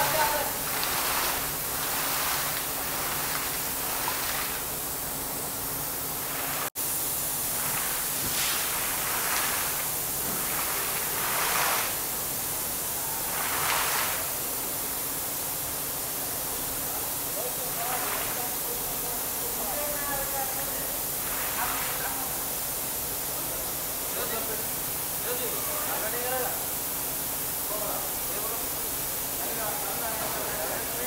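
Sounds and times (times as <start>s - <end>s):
compressed air blowing water: 0.0s - 16.9s.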